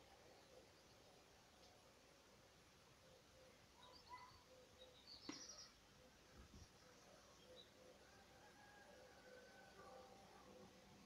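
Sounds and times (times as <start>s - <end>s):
distant bird calls: 2.9s - 11.0s.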